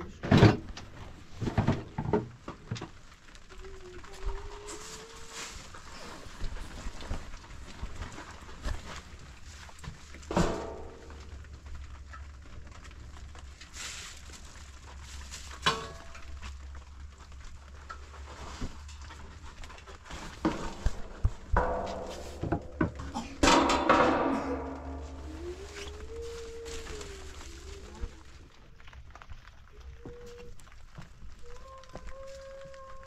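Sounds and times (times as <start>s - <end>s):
metal pots clanking: 10.2s - 11.3s, 15.5s - 16.4s, 20.4s - 25.9s.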